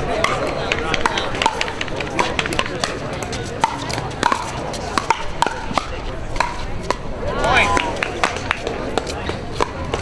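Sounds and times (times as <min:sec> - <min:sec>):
paddles striking plastic ball: 0:00.2 - 0:07.0.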